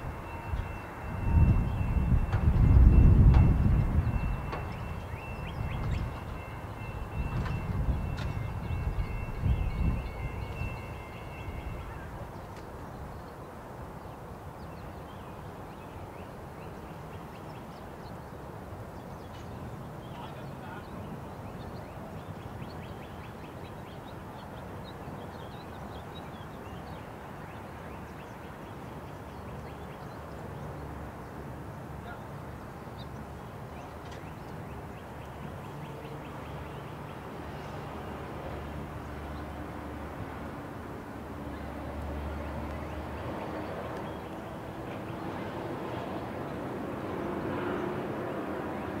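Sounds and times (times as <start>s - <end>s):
freight train rumble: 0.0s - 13.1s, 35.4s - 49.0s
cars crossing tracks: 0.0s - 49.0s.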